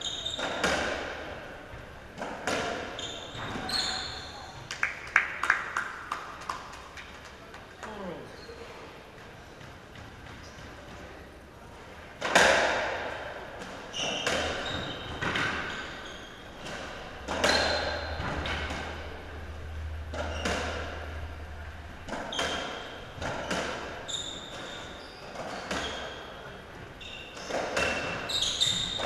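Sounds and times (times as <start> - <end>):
racquets striking ball: 0.4 - 3.7, 12.2 - 19.1, 20.1 - 21.2, 22.0 - 26.2.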